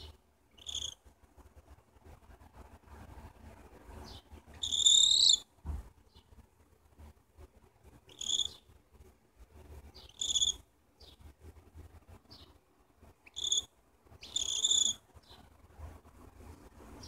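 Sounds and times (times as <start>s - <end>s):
cockatiel chirps: 0.0s - 1.0s, 4.1s - 5.5s, 8.1s - 8.7s, 10.0s - 11.2s, 13.2s - 15.0s.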